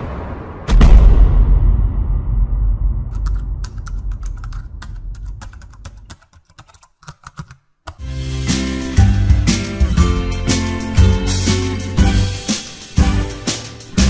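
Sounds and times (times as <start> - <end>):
deep boom rumble: 0.0 - 6.0
keyboard key clicks: 3.2 - 8.0
music with bass line: 8.0 - 14.0.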